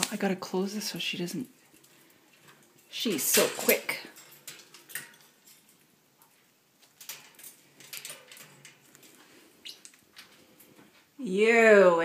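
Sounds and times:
clicks and taps on wire bird cage: 0:02.4 - 0:05.7, 0:06.8 - 0:09.2.

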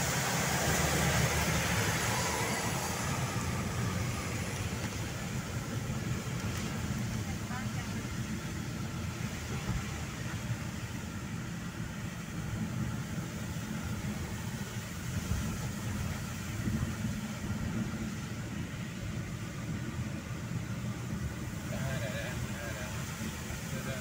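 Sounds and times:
car engine and tyre rumble: 0:00.0 - 0:24.0
wet road hiss: 0:00.0 - 0:24.0.

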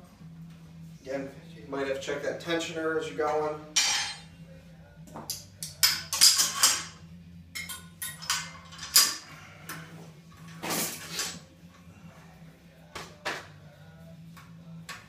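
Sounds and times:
steel parts clinking and clanking: 0:03.3 - 0:04.3, 0:05.3 - 0:09.8, 0:10.4 - 0:11.5
metal scraping rattle: 0:10.4 - 0:11.5.

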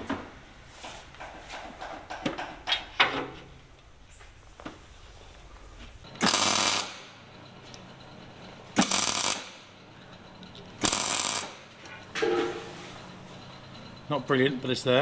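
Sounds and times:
welder hiss and crackle: 0:06.2 - 0:07.0, 0:08.8 - 0:09.5, 0:10.8 - 0:11.6.

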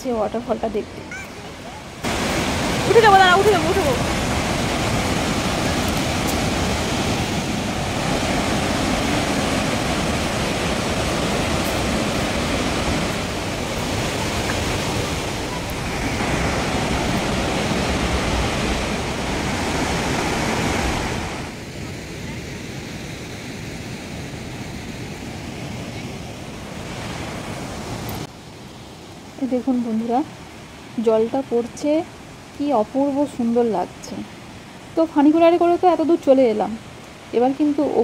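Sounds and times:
waterfall rushing: 0:00.3 - 0:29.4.

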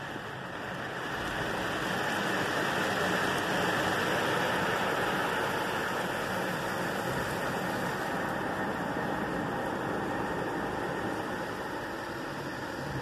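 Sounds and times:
water jets spraying on car: 0:00.0 - 0:13.0.

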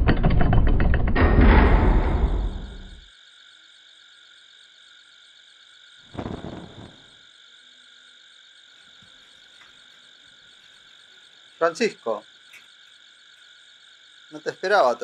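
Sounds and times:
frogs chorus: 0:06.7 - 0:15.0.

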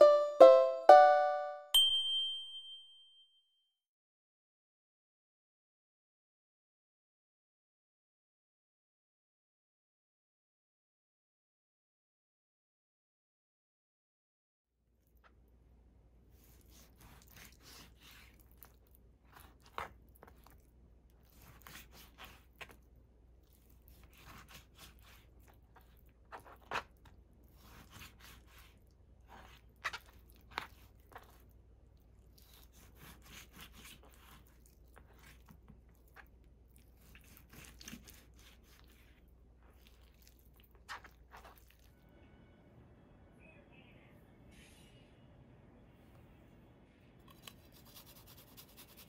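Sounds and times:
knife slicing raw meat: 0:16.4 - 0:18.7, 0:21.2 - 0:22.8, 0:23.5 - 0:26.9, 0:27.5 - 0:31.4, 0:32.4 - 0:39.2.

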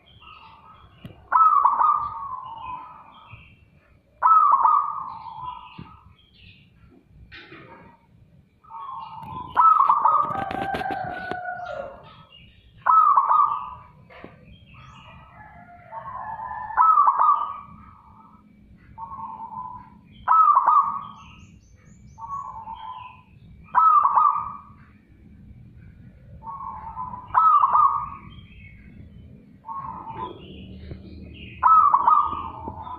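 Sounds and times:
dove cooing: 0:01.2 - 0:03.0, 0:04.2 - 0:06.0, 0:08.7 - 0:12.2, 0:12.8 - 0:14.3, 0:15.1 - 0:18.3, 0:19.0 - 0:21.1, 0:22.2 - 0:24.8, 0:26.3 - 0:28.3, 0:29.6 - 0:32.9.

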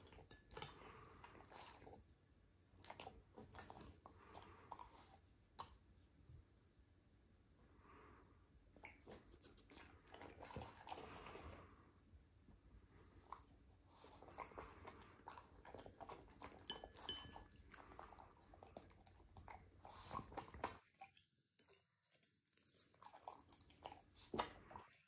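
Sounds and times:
dog chewing and crunching vegetables: 0:00.0 - 0:05.8, 0:08.8 - 0:11.7, 0:13.0 - 0:25.0.

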